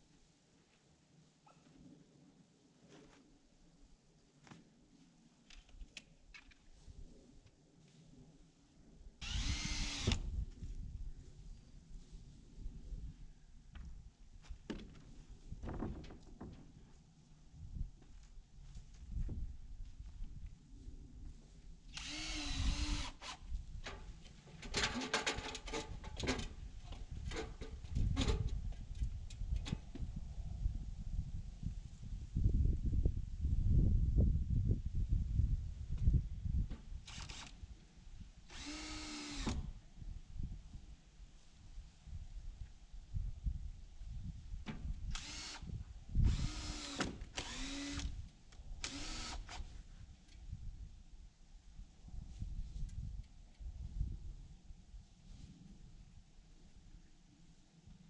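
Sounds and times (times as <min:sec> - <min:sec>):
cordless drill running: 0:09.2 - 0:10.2, 0:22.0 - 0:23.4, 0:37.1 - 0:37.5, 0:38.5 - 0:39.6, 0:45.2 - 0:45.7, 0:46.3 - 0:48.1, 0:48.8 - 0:49.6
metal ladder clanking and rattling: 0:24.6 - 0:26.5.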